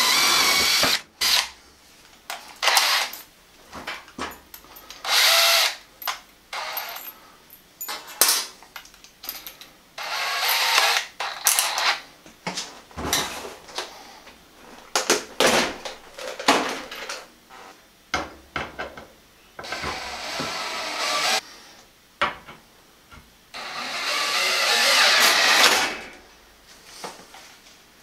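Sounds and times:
cordless drill running: 0.0 - 1.4, 2.6 - 3.1, 5.1 - 5.8, 10.0 - 12.0, 19.7 - 21.4, 23.6 - 26.0.

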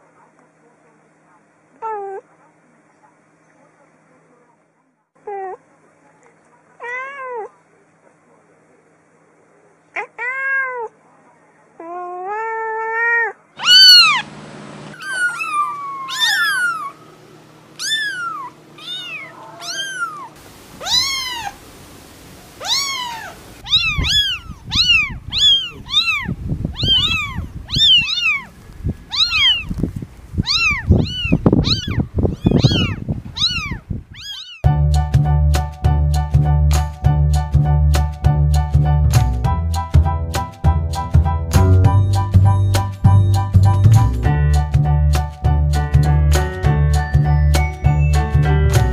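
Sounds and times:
cat meowing: 6.8 - 7.5, 10.0 - 10.9, 11.8 - 14.2, 15.0 - 17.1, 17.8 - 21.6, 22.6 - 29.8, 30.4 - 34.7
kittens mewing: 11.8 - 14.3, 14.9 - 21.6, 22.5 - 34.7
music with steady beat: 34.7 - 48.9.

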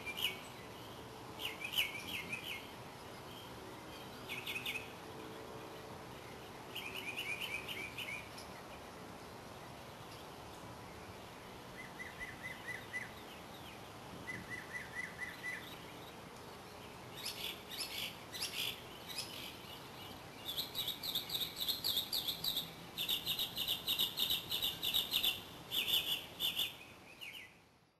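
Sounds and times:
songbirds calling: 0.0 - 27.9
bird rapid trills: 17.1 - 26.8.

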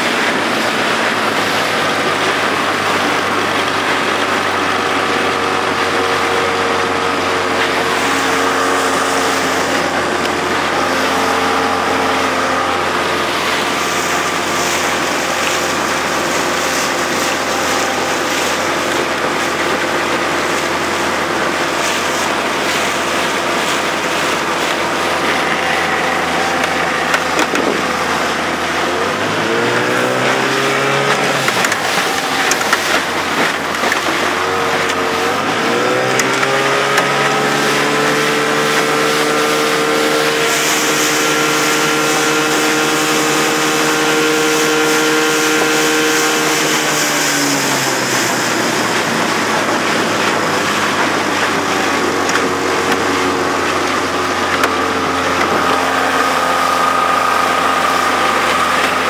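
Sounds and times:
outboard motor running: 0.0 - 59.0
water rushing along hull: 0.0 - 59.0.

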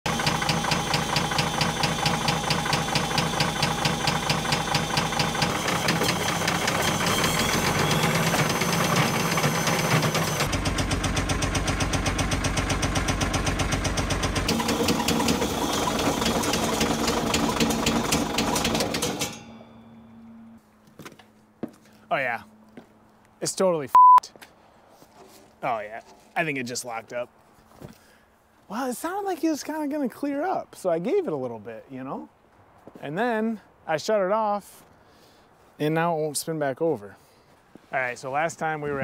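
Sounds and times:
diesel engine knocking: 0.1 - 19.4.

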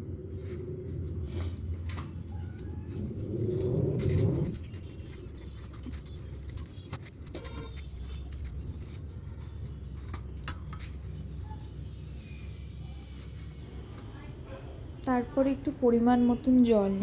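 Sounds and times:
low background rumble: 0.0 - 6.9
mushroom pieces clicking and rustling: 3.9 - 11.3.

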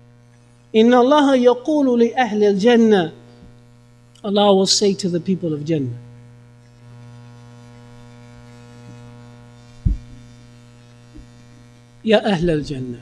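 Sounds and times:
electrical mains hum: 0.0 - 13.0
short low thump: 9.8 - 10.3.

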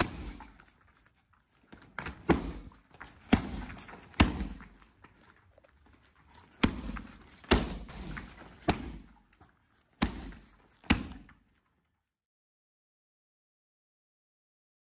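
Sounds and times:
kicks slapping a kick paddle: 0.0 - 0.6, 2.0 - 4.8, 6.5 - 9.2, 10.0 - 11.4.

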